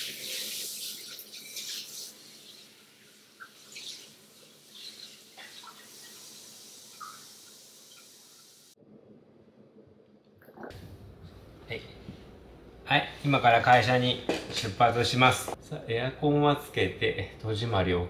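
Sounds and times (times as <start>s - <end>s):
water running from a tap: 0.0s - 8.8s.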